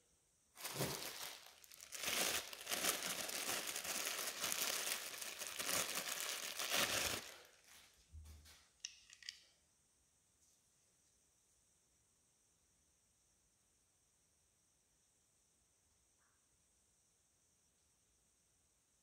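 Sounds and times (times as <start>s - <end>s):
plastic bag crinkling: 0.6s - 7.8s.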